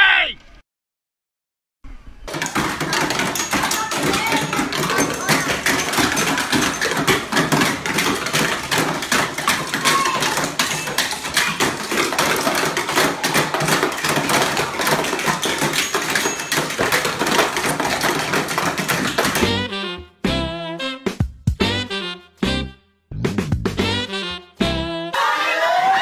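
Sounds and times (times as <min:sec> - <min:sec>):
children playing with sticks and toys: 0:02.3 - 0:19.7.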